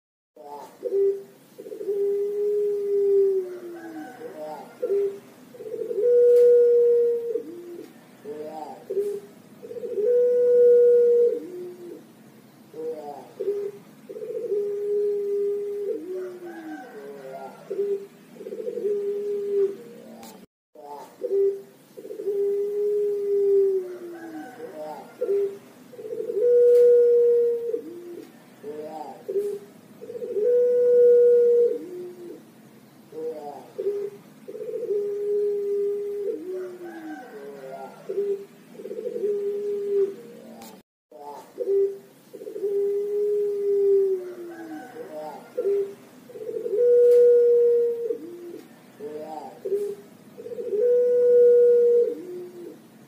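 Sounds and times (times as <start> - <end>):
dove cooing: 0.4 - 53.0.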